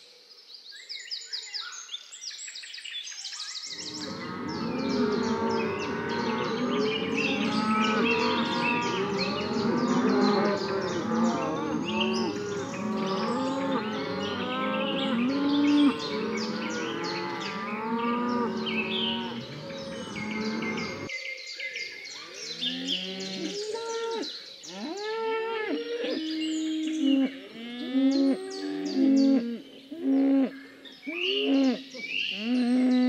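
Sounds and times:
cattle mooing: 3.8 - 21.1.

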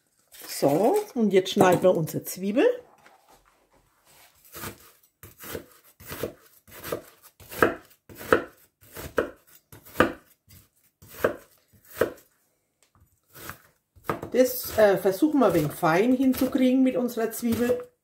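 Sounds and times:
knife chopping on plastic board: 4.5 - 12.2, 13.3 - 14.9.

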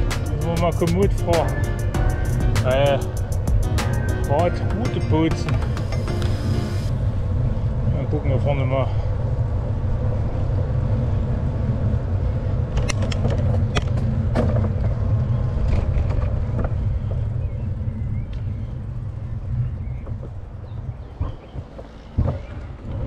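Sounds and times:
road rumble: 0.0 - 23.0
wind on microphone: 5.0 - 23.0
sharp clicks and rattles: 12.7 - 16.8.

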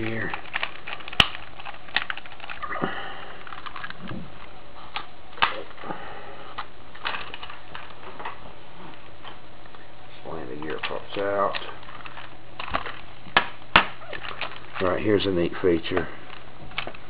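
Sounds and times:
toy robot parts clicking and knocking: 0.0 - 2.6.

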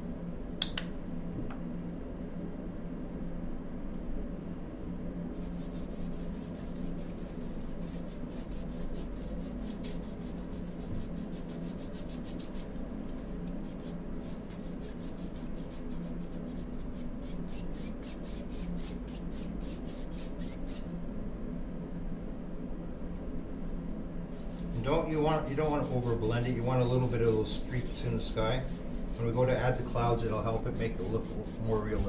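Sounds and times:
paintbrush scrubbing on canvas: 5.3 - 20.9, 24.3 - 32.0.

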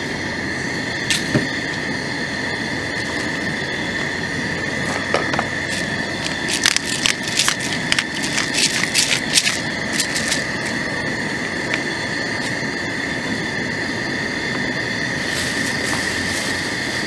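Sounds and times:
constant high buzzing tone: 0.0 - 17.0
pepper grinder clicking: 6.2 - 10.4.

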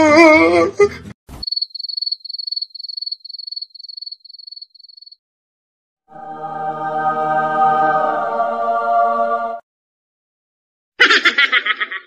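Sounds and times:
crickets chirping: 1.4 - 5.2.

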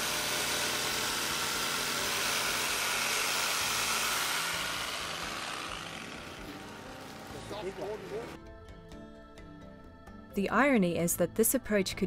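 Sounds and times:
power saw grinding: 0.0 - 8.4.

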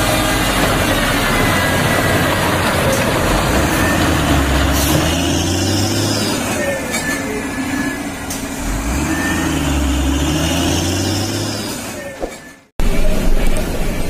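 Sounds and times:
heavy truck engine running: 0.0 - 14.0
rumbling vehicle: 0.0 - 14.0.

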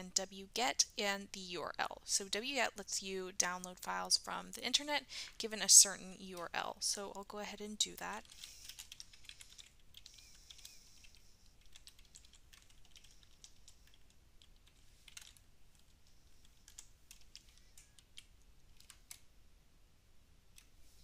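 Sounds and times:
typing on keyboard: 8.2 - 19.3.

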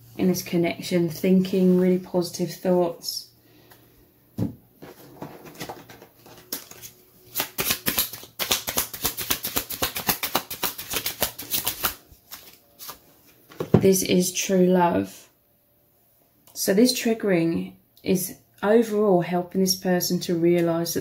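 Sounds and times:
cards being shuffled: 4.8 - 13.5.

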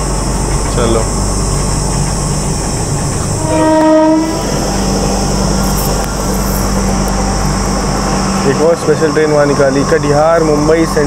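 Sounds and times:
stationary train humming: 0.0 - 11.0
train horn: 3.4 - 9.0.

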